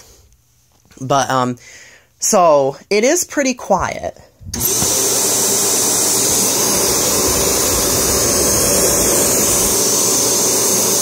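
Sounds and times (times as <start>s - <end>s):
upright vacuum cleaner running: 4.5s - 11.0s.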